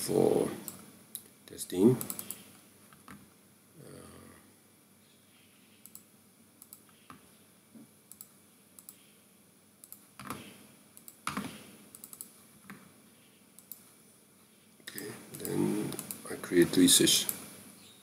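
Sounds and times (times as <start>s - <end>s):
computer mouse clicks: 2.0s - 3.2s, 5.8s - 7.2s, 8.1s - 9.1s, 9.8s - 12.8s, 13.6s - 13.9s, 14.9s - 16.2s.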